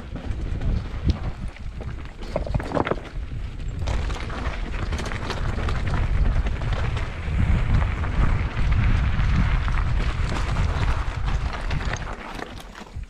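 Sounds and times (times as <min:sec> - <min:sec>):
wind buffeting microphone: 0:00.0 - 0:12.2.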